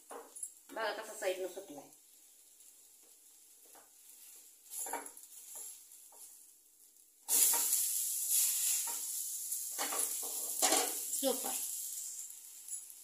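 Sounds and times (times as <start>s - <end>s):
batter sizzling in a hot pan: 0.0s - 13.0s
spatula scraping a pan: 2.0s - 6.5s, 7.3s - 13.0s.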